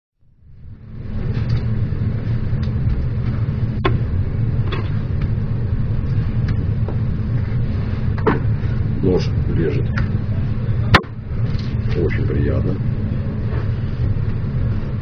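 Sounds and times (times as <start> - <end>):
low mechanical rumble: 0.2 - 15.0.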